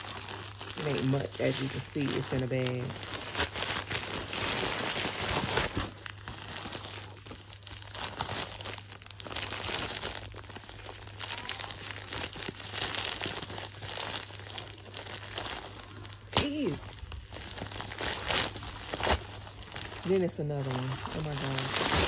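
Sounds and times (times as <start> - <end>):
envelope crinkling and rustling: 0.0 - 22.0.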